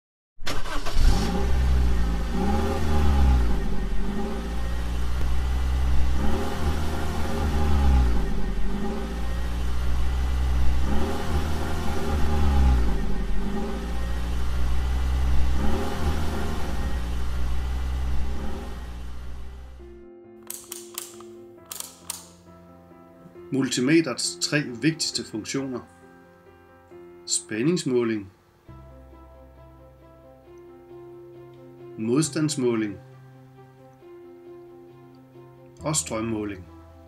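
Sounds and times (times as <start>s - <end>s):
car engine idling and revving: 0.5s - 19.8s.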